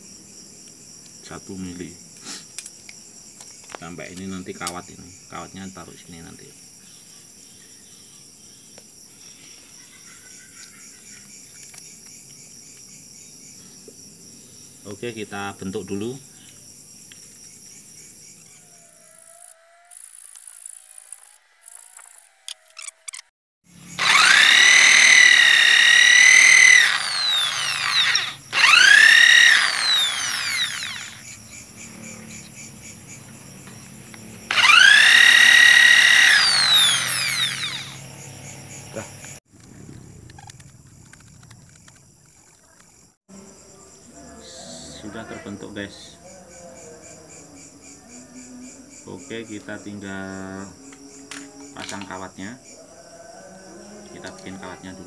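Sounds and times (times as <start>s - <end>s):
electric drill whining: 23.9s - 31.3s, 34.5s - 38.2s.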